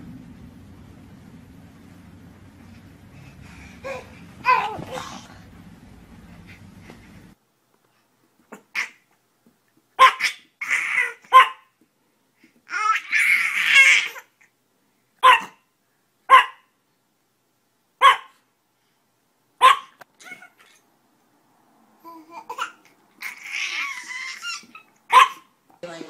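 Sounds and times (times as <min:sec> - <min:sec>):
small dog yapping: 0:03.8 - 0:05.2, 0:10.0 - 0:11.7, 0:15.2 - 0:15.6, 0:16.3 - 0:16.7, 0:18.0 - 0:18.4, 0:19.6 - 0:20.8, 0:22.5 - 0:25.5.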